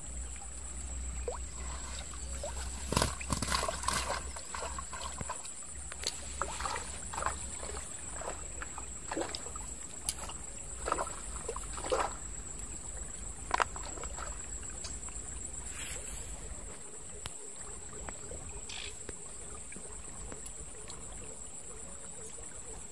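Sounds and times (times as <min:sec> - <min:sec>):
high-pitched insect trill: 0:00.0 - 0:16.4, 0:17.8 - 0:19.7
shallow water sloshing and splashing: 0:00.0 - 0:22.9.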